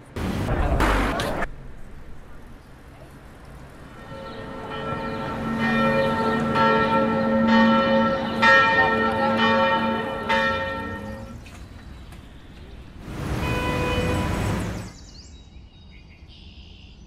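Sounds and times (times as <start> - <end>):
church bells pealing: 3.8 - 11.5.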